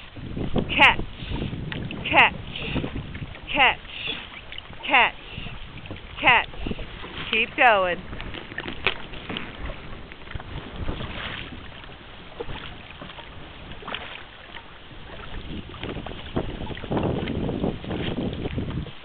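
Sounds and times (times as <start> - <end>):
paddles splashing in water: 0.0 - 19.0
wind on microphone: 0.0 - 19.0.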